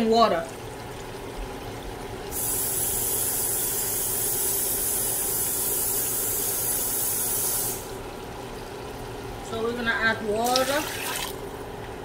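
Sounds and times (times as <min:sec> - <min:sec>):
steam hissing and sizzling gravy: 0:02.3 - 0:08.0.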